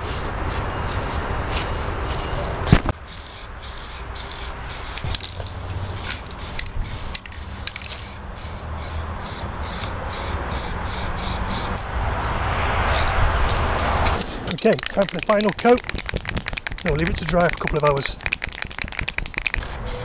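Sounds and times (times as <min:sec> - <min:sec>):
spray paint can hissing bursts: 0:03.1 - 0:05.4, 0:06.0 - 0:11.8, 0:14.2 - 0:20.0.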